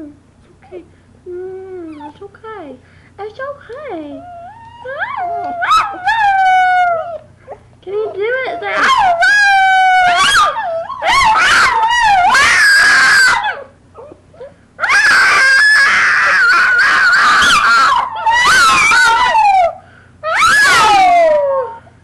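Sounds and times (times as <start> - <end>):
small dog screaming: 8.6 - 14.2, 14.8 - 21.8.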